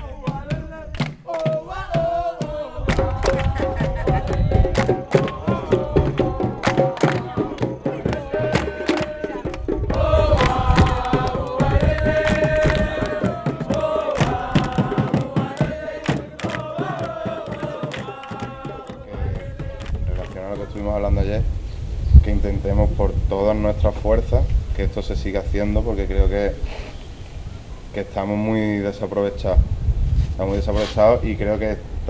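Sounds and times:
group of voices chanting: 0:00.0 - 0:21.2
drum ensemble playing: 0:01.4 - 0:21.0.

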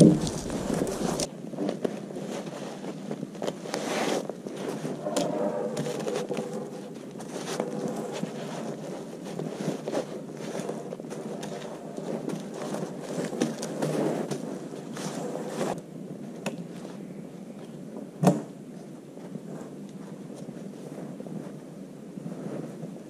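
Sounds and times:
log knocked and scraped by hand: 0:00.0 - 0:01.3.

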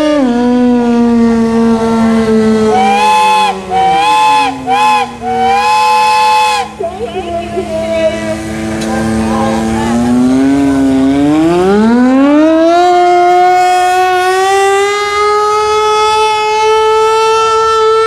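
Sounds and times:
warning siren winding up: 0:00.7 - 0:06.7, 0:08.8 - 0:18.0
steam whistle: 0:02.6 - 0:06.8.

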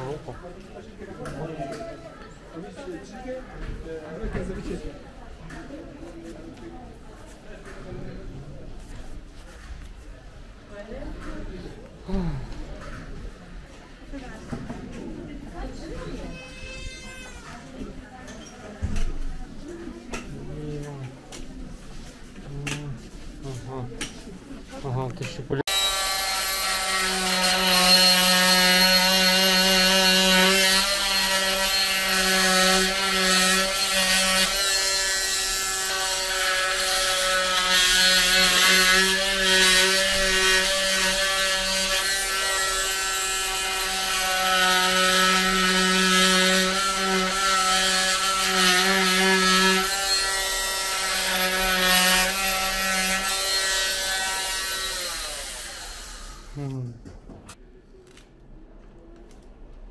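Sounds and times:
cast saw buzzing: 0:25.7 - 0:56.6.

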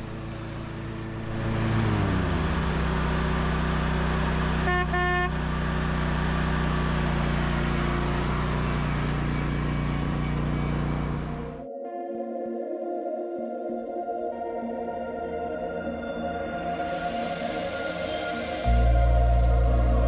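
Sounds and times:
riding lawn mower engine: 0:00.0 - 0:11.6
car horn blast: 0:04.6 - 0:05.5.

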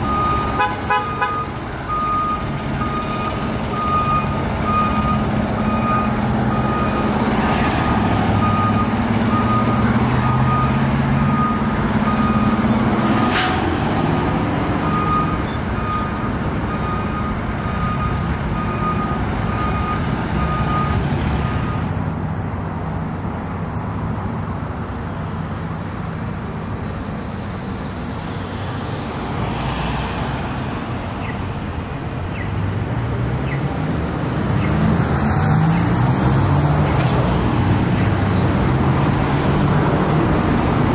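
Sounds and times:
diesel engine running: 0:00.0 - 0:13.1
passing traffic: 0:00.0 - 0:40.9.

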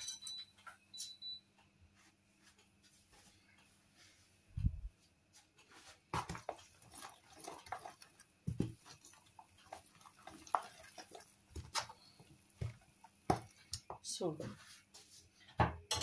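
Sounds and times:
hands squelching dough: 0:06.1 - 0:14.2.

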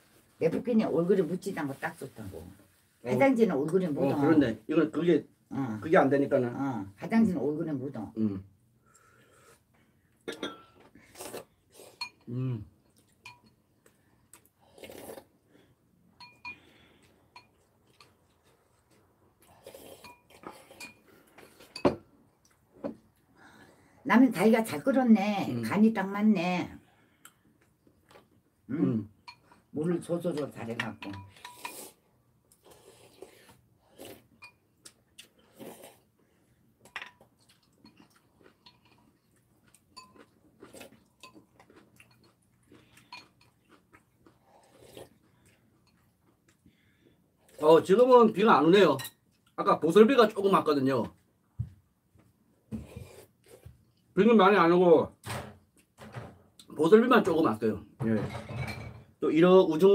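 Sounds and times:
utensils clinking against ceramic bowls: 0:10.3 - 0:10.8, 0:13.2 - 0:13.6, 0:16.2 - 0:16.7, 0:20.0 - 0:21.0, 0:30.4 - 0:31.8, 0:37.8 - 0:39.1
chewing and slurping noodles: 0:14.3 - 0:15.4, 0:17.5 - 0:21.7, 0:31.3 - 0:36.6, 0:37.2 - 0:46.8
slurping noodles: 0:14.6 - 0:15.3, 0:19.4 - 0:20.8, 0:31.4 - 0:32.0, 0:32.6 - 0:34.3, 0:35.3 - 0:36.1, 0:44.4 - 0:45.2.

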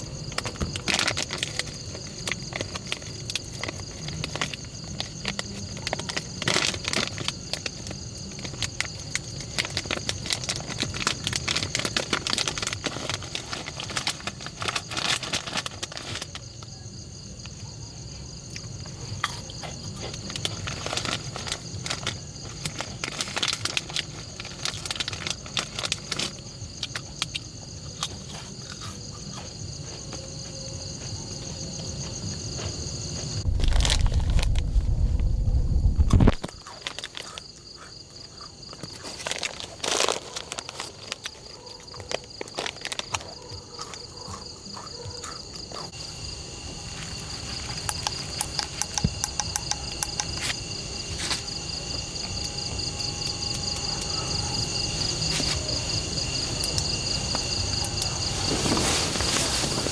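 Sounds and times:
insects chirping: 0:00.0 - 0:59.9
crackling clicks: 0:33.5 - 0:37.4.

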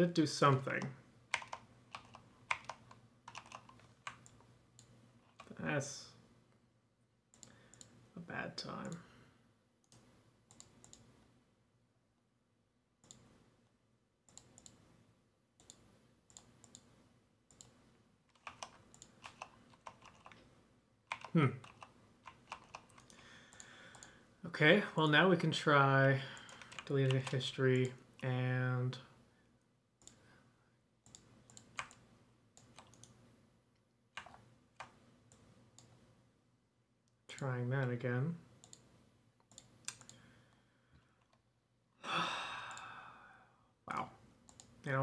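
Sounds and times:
computer mouse clicks: 0:00.5 - 0:05.6, 0:07.3 - 0:08.0, 0:09.8 - 0:11.1, 0:13.0 - 0:13.3, 0:14.3 - 0:14.8, 0:15.6 - 0:20.4, 0:21.1 - 0:24.2, 0:26.4 - 0:28.0, 0:30.0 - 0:30.2, 0:31.0 - 0:32.0, 0:32.6 - 0:33.2, 0:34.2 - 0:36.0, 0:38.6 - 0:40.2, 0:44.5 - 0:44.8.

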